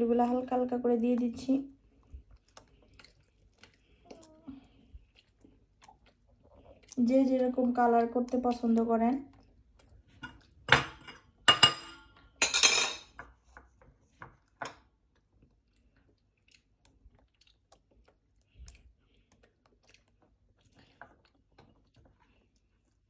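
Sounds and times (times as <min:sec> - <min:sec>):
utensils and dishes clattering: 0:10.2 - 0:13.2.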